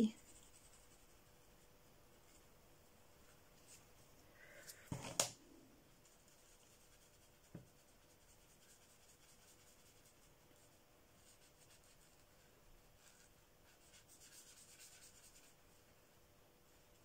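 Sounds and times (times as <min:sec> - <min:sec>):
felt-tip pen rubbing on paper: 0:06.0 - 0:15.6.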